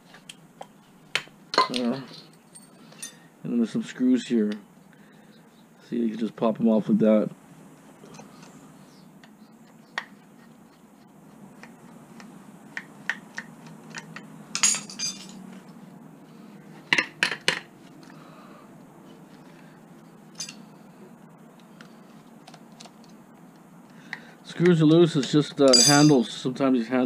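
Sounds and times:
metal parts clinking: 13.9s - 15.4s, 20.3s - 20.7s, 25.2s - 26.3s
metal rattle: 25.7s - 26.2s.

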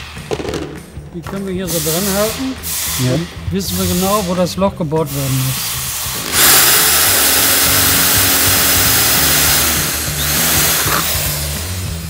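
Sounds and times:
electric drill boring: 5.2s - 12.0s.

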